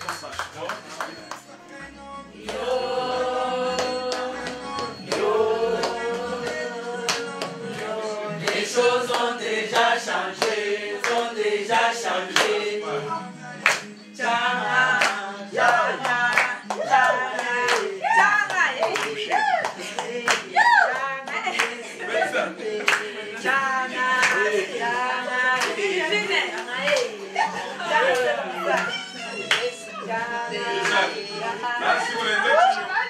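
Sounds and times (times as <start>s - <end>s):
hand clapping: 0.0s - 1.6s, 2.4s - 2.7s, 3.7s - 11.3s, 12.3s - 12.6s, 13.6s - 14.0s, 15.0s - 21.9s, 22.8s - 24.6s, 25.5s - 25.9s, 26.5s - 27.2s, 28.0s - 29.8s, 30.8s - 31.1s
group of people singing: 1.4s - 33.0s.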